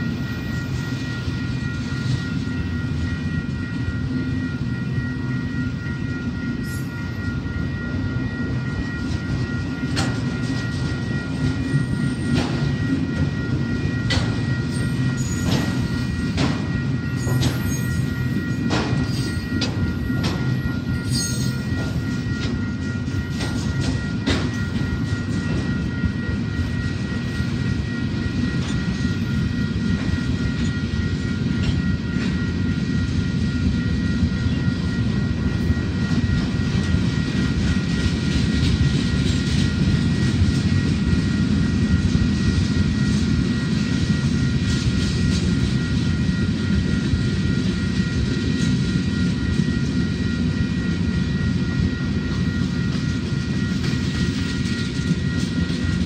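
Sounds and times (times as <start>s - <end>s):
freight train rumbling past: 0.0s - 56.0s
sharp clacks of train cars: 12.2s - 12.8s, 14.1s - 25.6s.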